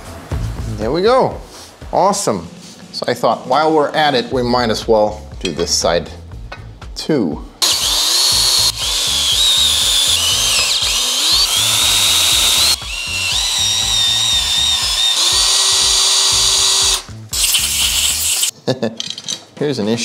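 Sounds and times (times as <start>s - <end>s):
power drill whining: 7.6s - 18.5s.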